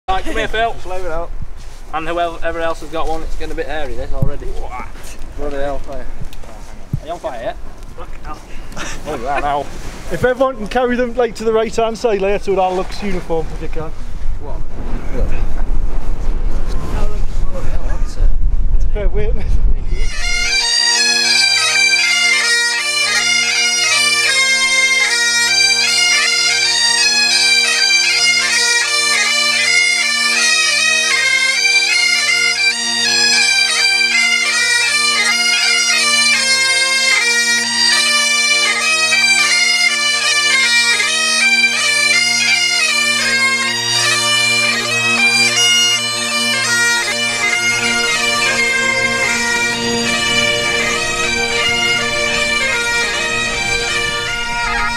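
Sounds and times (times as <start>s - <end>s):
bagpipe band playing: 19.9s - 54.9s.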